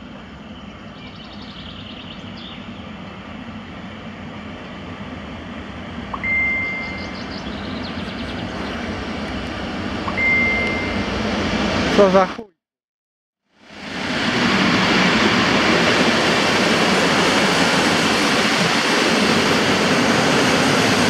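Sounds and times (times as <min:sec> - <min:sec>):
electric locomotive approaching: 0:00.0 - 0:12.4, 0:13.6 - 0:21.0
high-pitched train whistle: 0:06.2 - 0:07.2, 0:10.1 - 0:11.2.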